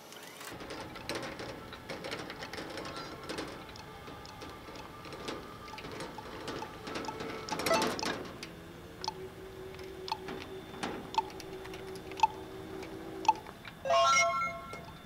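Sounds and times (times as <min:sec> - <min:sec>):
sharp ticks: 0:11.1 - 0:13.6
electronic chime: 0:13.3 - 0:15.0.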